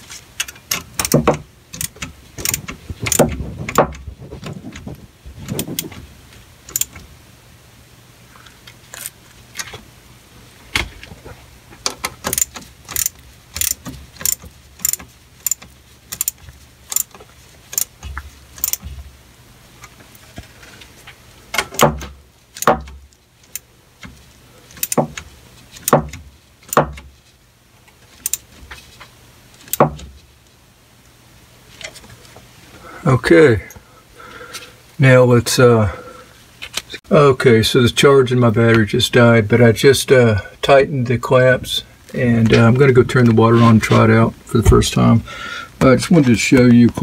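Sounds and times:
hose clamp metallic clicks: 0.4s - 3.2s, 6.7s - 7.0s, 11.8s - 18.0s, 18.6s - 18.9s, 24.7s - 25.2s
louder metal knocks: 2.4s - 5.9s.

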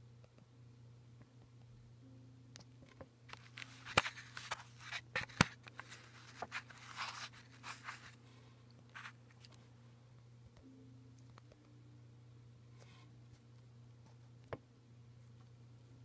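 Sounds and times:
low steady hum: 0.0s - 16.0s
coin scraping and rubbing: 3.3s - 8.2s.

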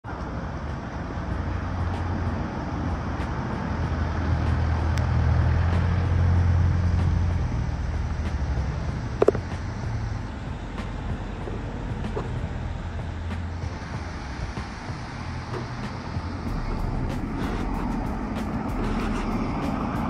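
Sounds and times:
vehicle engine humming: 0.0s - 20.0s.

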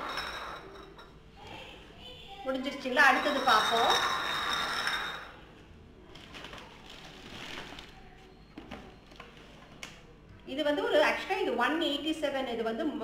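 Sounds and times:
glass bottles scraping on tile: 0.0s - 1.1s, 3.1s - 5.4s.

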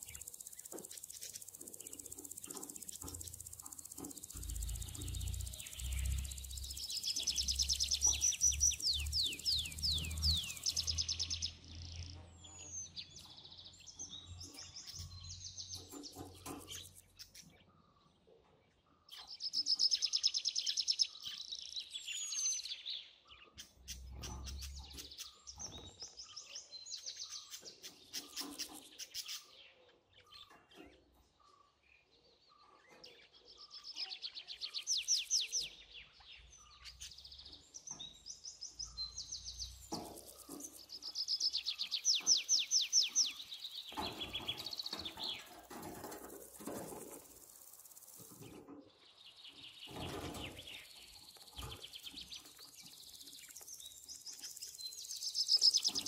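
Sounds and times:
budgerigars warbling and chirping: 0.0s - 18.0s, 23.4s - 31.8s, 38.8s - 47.1s, 49.5s - 56.0s.

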